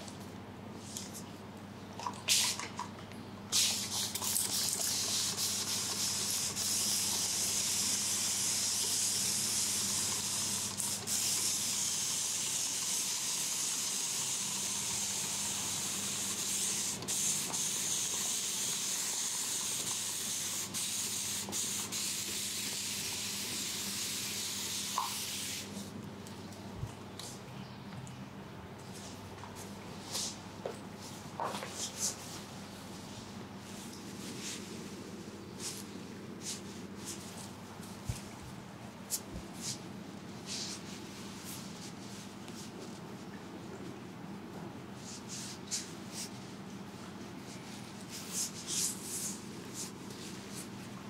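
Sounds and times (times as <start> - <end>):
spray bottle hissing mist: 3.5 - 25.7
spray bottle clicks: 24.9 - 25.3.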